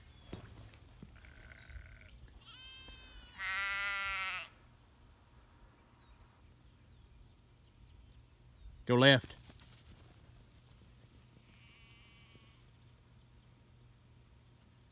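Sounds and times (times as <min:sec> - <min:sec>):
sheep bleating: 0:01.2 - 0:04.6, 0:11.4 - 0:12.6.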